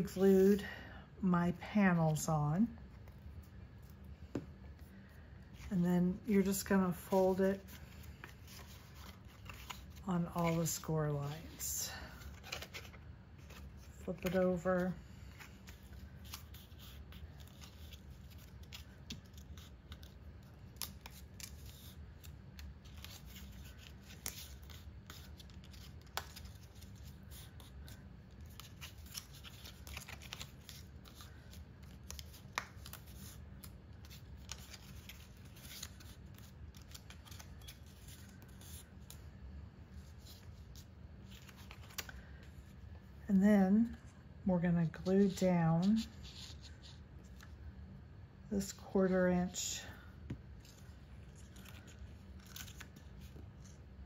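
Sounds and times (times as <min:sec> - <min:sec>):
low steady hum: 0:00.0 - 0:54.0
stiff paper crackling and rustling: 0:07.0 - 0:11.4.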